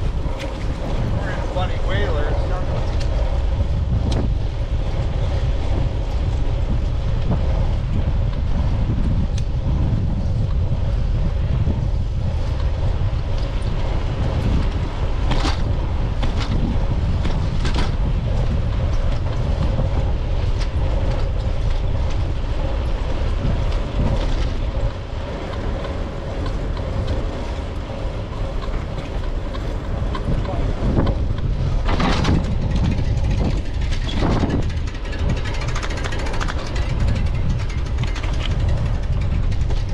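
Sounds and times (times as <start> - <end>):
bicycle tyre rumble: 0.0 - 39.9
wind buffeting microphone: 0.0 - 39.9.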